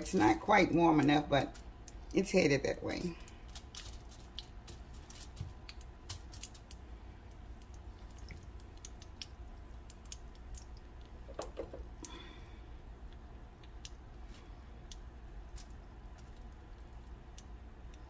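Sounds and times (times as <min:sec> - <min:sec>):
food frying in oil: 0:00.0 - 0:12.3.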